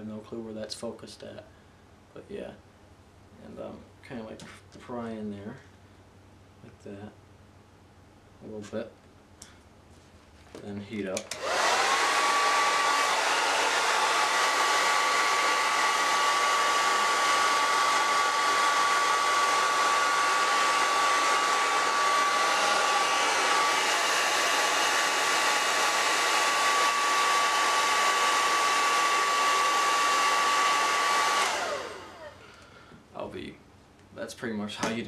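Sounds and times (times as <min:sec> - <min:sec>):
hair dryer running: 0:11.2 - 0:32.7.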